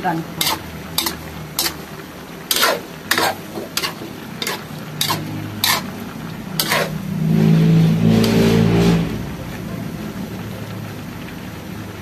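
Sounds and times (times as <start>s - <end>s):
utensil scraping metal wok: 0.0s - 9.6s
frying sizzle: 0.0s - 12.0s.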